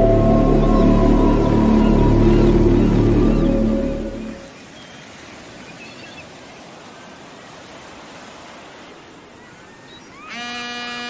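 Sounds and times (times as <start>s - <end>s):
ocean waves: 0.0s - 11.0s
faint bird calls: 9.3s - 11.0s.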